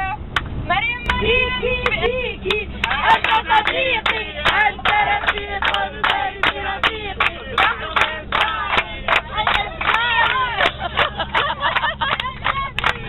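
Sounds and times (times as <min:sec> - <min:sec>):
bus engine low hum: 0:00.0 - 0:13.0
people clapping in time: 0:01.8 - 0:13.0
people singing together: 0:02.5 - 0:10.9.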